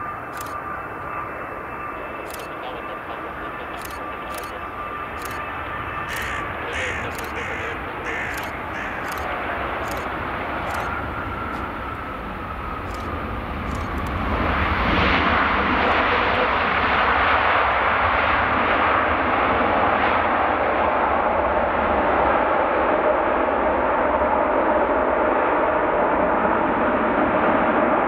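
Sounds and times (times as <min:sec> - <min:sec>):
falling engine whine: 0:00.0 - 0:17.1
jet engine noise: 0:00.0 - 0:28.0.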